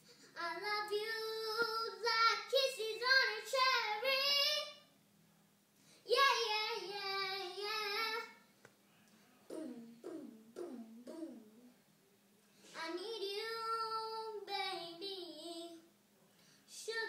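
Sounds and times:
girl singing alone: 0:00.1 - 0:04.9, 0:06.0 - 0:08.4, 0:12.7 - 0:15.9, 0:16.7 - 0:17.0.

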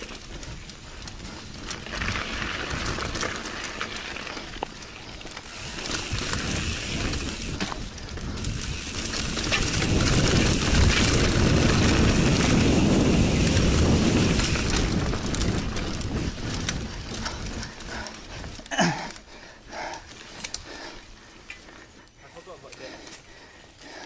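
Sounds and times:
bike rattling and clicking: 0:00.0 - 0:24.0
tyres rumbling over ground: 0:01.8 - 0:17.5
wind buffeting microphone: 0:05.5 - 0:18.6.

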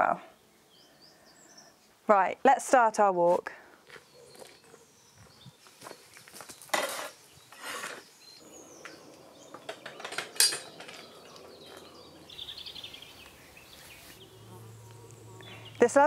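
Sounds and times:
metal gate latch clanking: 0:09.6 - 0:11.2.

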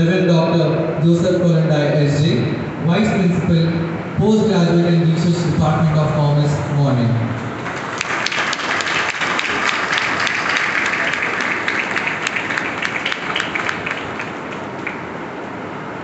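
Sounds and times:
audience applauding: 0:07.6 - 0:15.2.

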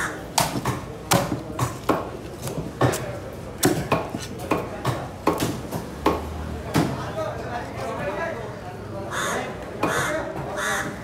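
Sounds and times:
knife chopping fish on wood: 0:00.4 - 0:06.2.

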